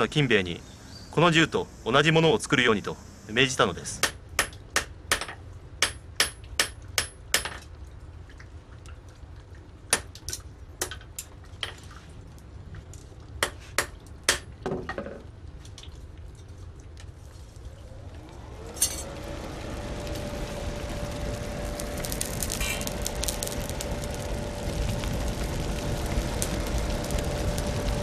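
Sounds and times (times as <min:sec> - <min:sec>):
hammer striking iron on anvil: 0:04.0 - 0:07.6
steady low rumble: 0:15.3 - 0:28.0.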